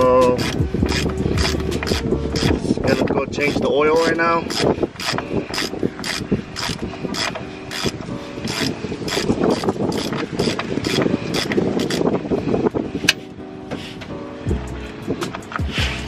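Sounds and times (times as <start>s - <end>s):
ratchet wrench clicking: 0.0s - 12.1s.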